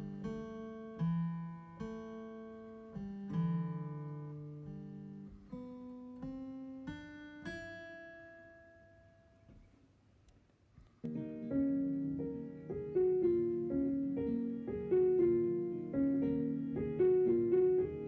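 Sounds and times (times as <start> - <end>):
keyboard chords with plucked tone: 11.0 - 18.0.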